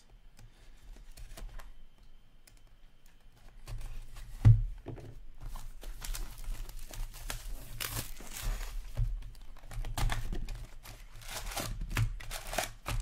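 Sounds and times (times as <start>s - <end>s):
wrapping crinkling and tearing: 5.5s - 13.0s.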